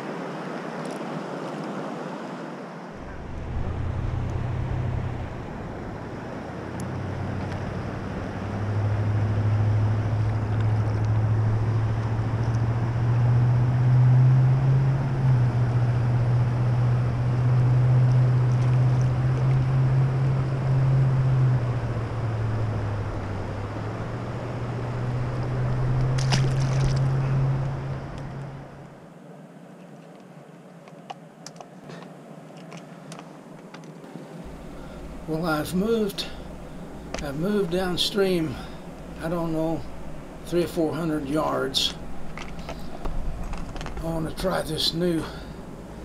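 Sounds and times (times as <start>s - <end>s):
wind buffeting microphone: 2.9s - 28.8s.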